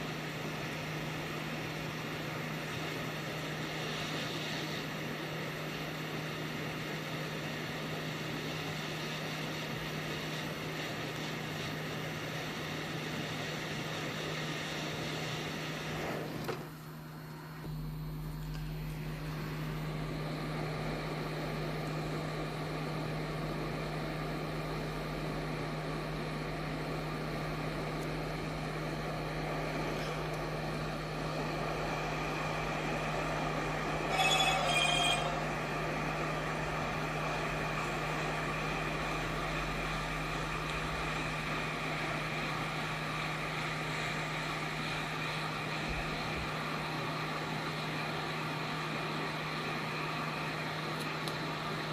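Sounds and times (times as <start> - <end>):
hot air station blowing: 0.0 - 17.6, 18.7 - 51.9
short ringing electronic tone: 34.0 - 35.6.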